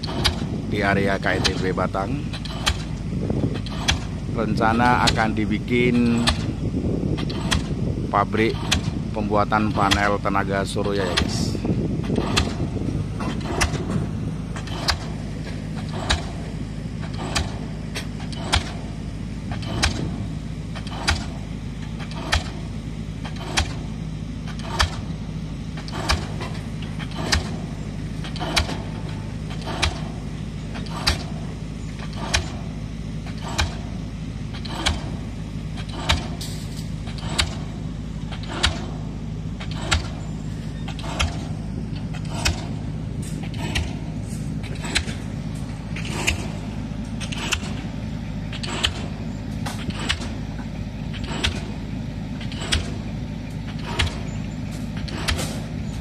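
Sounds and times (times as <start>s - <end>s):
diesel machinery drone: 0.0s - 56.0s
pile driver hammer banging: 0.0s - 56.0s.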